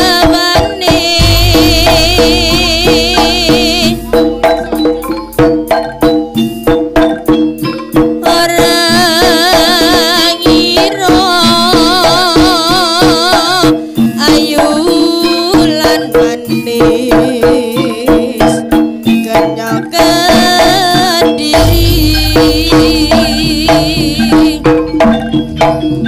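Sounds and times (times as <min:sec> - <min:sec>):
wavering melody: 0:00.0 - 0:12.3, 0:21.5 - 0:26.0
hand drums beating: 0:00.0 - 0:26.0
held low tones: 0:01.0 - 0:06.5, 0:21.6 - 0:26.0.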